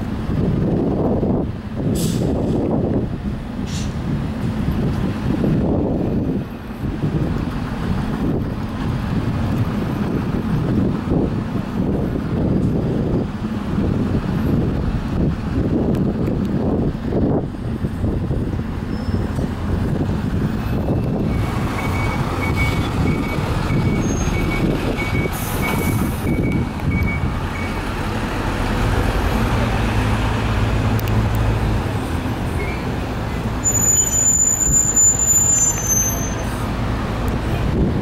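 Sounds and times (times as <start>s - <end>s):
bus engine low rumble: 0.0s - 38.0s
brake squeal: 18.8s - 19.5s, 20.4s - 27.8s, 32.5s - 36.8s
regular beeping: 21.2s - 27.8s.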